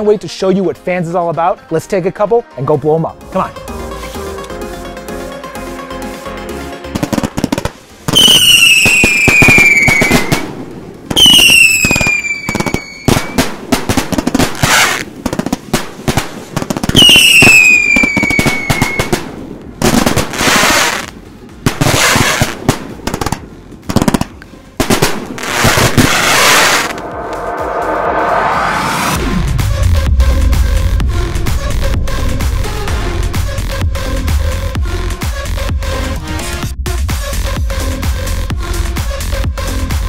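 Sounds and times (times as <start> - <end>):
falling firework whistles: 8.1 - 10.5, 11.1 - 13.5, 14.5 - 15.1, 16.8 - 19.2, 25.4 - 29.3.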